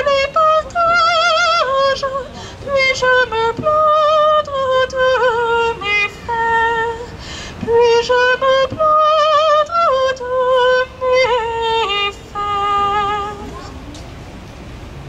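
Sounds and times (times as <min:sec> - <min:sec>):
woman singing solo: 0:00.0 - 0:13.8
singer breathing: 0:02.3 - 0:02.7, 0:07.0 - 0:07.7.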